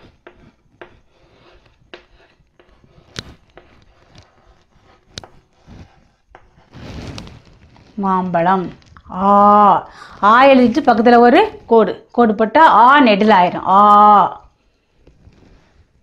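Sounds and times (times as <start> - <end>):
chalk tapping on blackboard: 0.0 - 6.7
chalk scratching: 0.0 - 7.3
rustling: 0.0 - 9.2.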